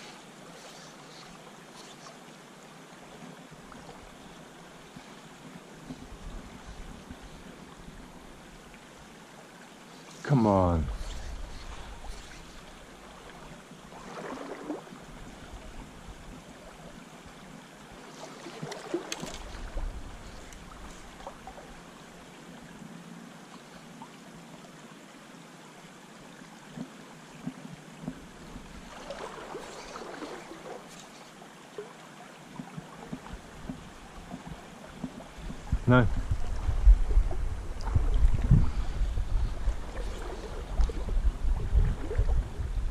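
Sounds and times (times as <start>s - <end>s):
river running over stones: 24.9s - 38.6s.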